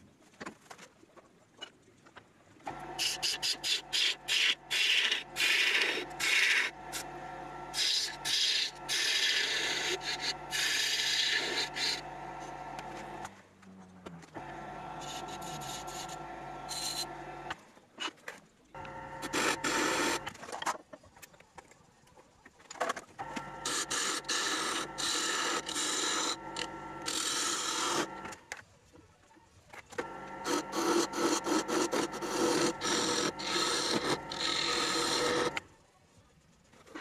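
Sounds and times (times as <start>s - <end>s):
lathe tool shaving wood: 2.7s - 13.3s, 14.4s - 17.6s, 18.8s - 20.3s, 23.2s - 28.4s, 30.0s - 35.6s.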